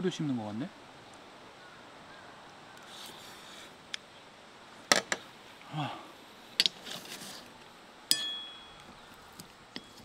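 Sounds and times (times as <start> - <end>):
chopsticks tapping metal plate: 8.1 - 8.8
metal plate ringing: 8.1 - 8.9.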